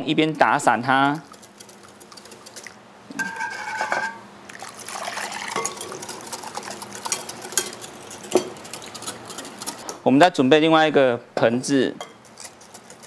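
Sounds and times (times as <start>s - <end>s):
milk pouring into bowl: 4.5s - 6.9s.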